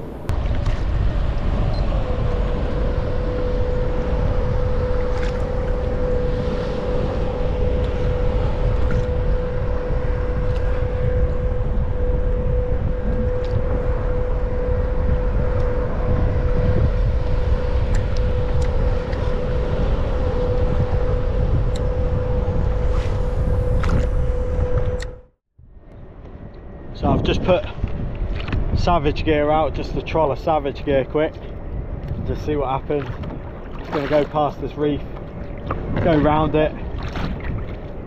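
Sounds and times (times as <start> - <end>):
wind rumble on microphone: 0.0 - 38.0
electric motor whining: 0.3 - 25.3.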